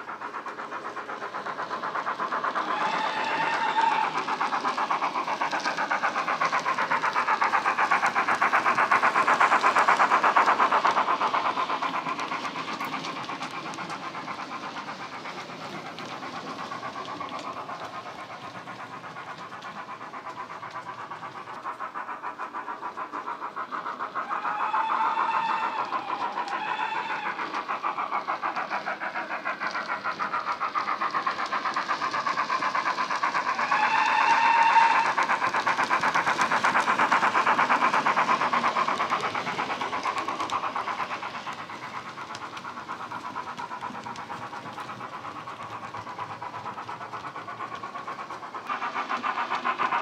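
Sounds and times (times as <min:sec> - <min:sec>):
steam engine exhaust chuffs: 0:00.0 - 0:50.0
steam whistle: 0:33.7 - 0:35.2.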